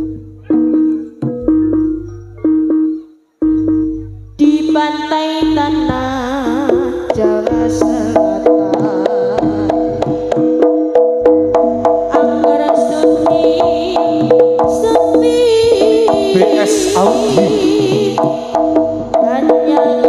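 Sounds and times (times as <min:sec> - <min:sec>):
gamelan music over loudspeakers: 0:00.0 - 0:20.0.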